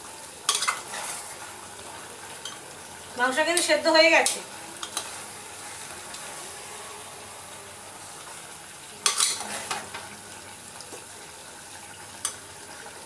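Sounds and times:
curry sizzling in a pan: 0:00.0 - 0:13.0
spoon scraping a pan: 0:00.5 - 0:01.5, 0:03.5 - 0:06.6, 0:09.0 - 0:10.2.

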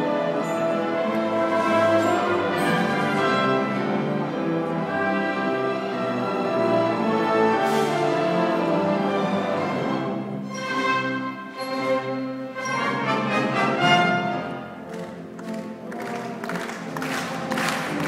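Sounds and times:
symphony orchestra playing: 0:00.0 - 0:18.0
audience applause: 0:14.7 - 0:18.0.

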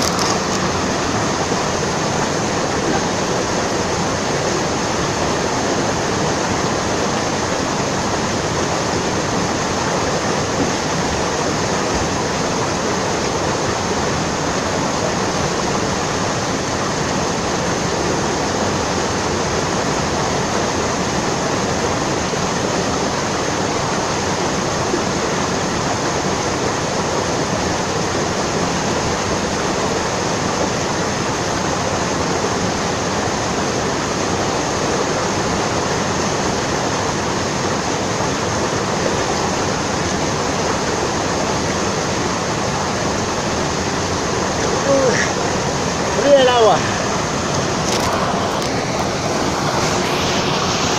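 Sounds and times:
flowing water rushing: 0:00.0 - 0:50.9.

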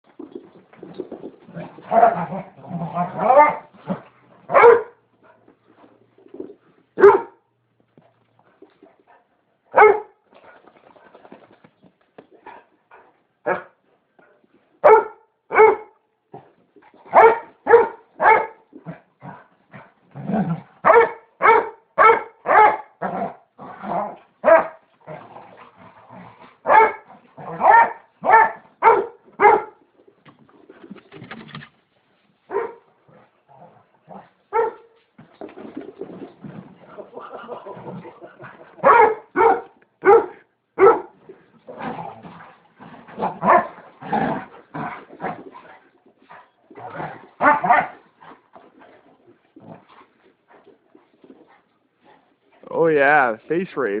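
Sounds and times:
dog barking: 0:04.5 - 0:05.0, 0:07.0 - 0:07.4, 0:09.7 - 0:10.2, 0:13.5 - 0:13.7, 0:14.8 - 0:16.0, 0:17.1 - 0:18.6, 0:20.8 - 0:23.0, 0:24.4 - 0:24.8, 0:26.6 - 0:29.8, 0:32.5 - 0:32.8, 0:34.5 - 0:34.9, 0:38.8 - 0:41.2, 0:43.4 - 0:43.7, 0:47.4 - 0:48.0
dog growling: 0:41.4 - 0:45.9, 0:46.7 - 0:50.2.

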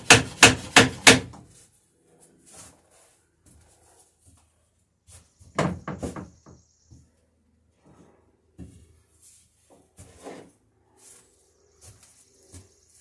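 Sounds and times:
wooden knocks: 0:05.5 - 0:06.6.

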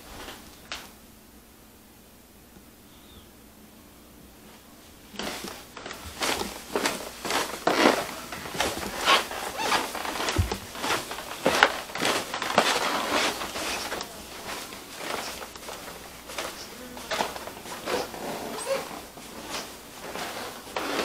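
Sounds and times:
clothes rustling: 0:04.4 - 0:21.0
footsteps on carpet: 0:04.5 - 0:21.0.

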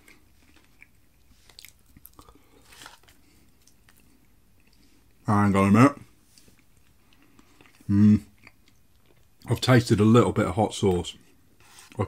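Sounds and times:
chewing food: 0:00.0 - 0:05.2, 0:06.3 - 0:09.7.

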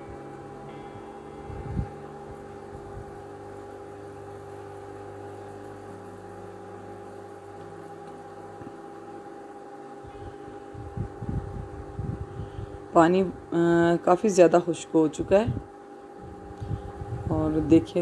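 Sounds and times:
machine hum: 0:00.0 - 0:18.0.

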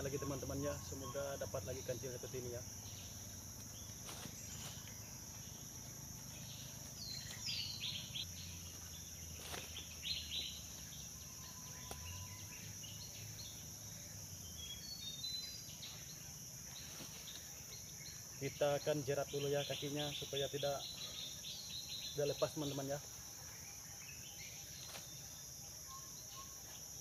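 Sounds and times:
bird chirps: 0:00.0 - 0:27.0
insects droning: 0:00.0 - 0:27.0
dry leaves rustling: 0:03.5 - 0:10.9, 0:16.8 - 0:17.6.

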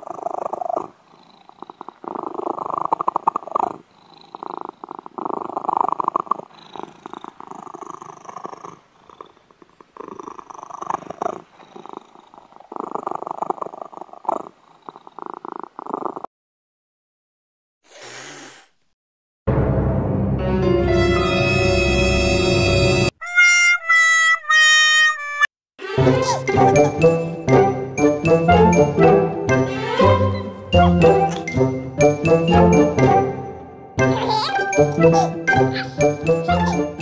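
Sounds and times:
kitten purring: 0:00.0 - 0:16.3.

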